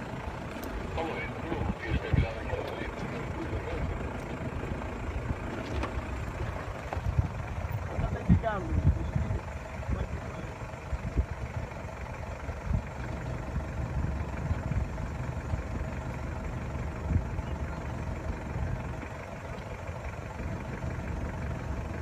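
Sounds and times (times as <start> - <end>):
diesel engine running: 0.0 - 22.0
knocks and thumps from rough ground: 5.4 - 8.5.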